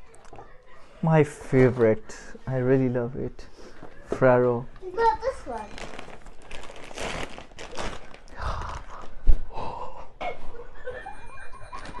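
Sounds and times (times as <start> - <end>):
plastic bag rustling: 5.0 - 9.2
breathy gasps: 8.3 - 10.2.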